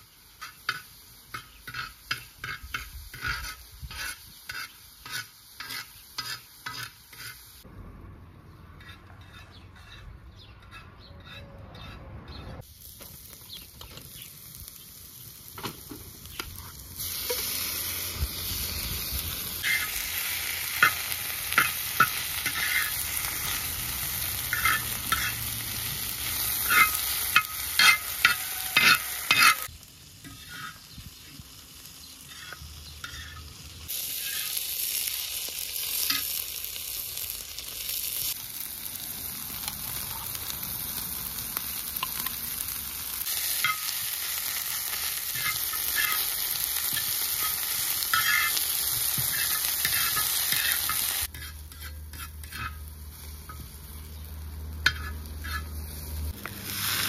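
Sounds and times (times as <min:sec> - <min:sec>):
meat and onions sizzling in oil: 0:00.0 - 0:07.7, 0:12.6 - 0:57.0
metal spatula scraping a pan: 0:00.3 - 0:07.6, 0:08.7 - 0:12.6, 0:19.6 - 0:31.0, 0:32.2 - 0:36.4, 0:43.2 - 0:53.7, 0:54.8 - 0:57.0.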